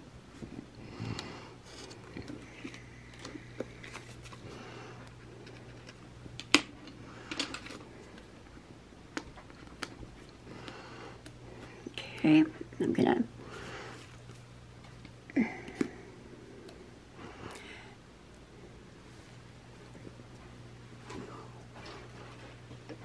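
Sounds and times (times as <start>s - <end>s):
low steady hum: 0.0s - 23.0s.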